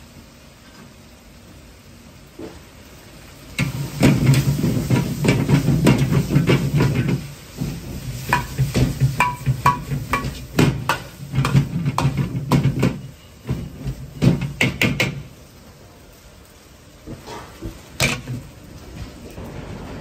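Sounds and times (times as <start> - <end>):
gas burner hum: 0.0 - 20.0
rice frying hiss: 0.0 - 20.0
metal ladle clanking on a wok: 8.3 - 13.1.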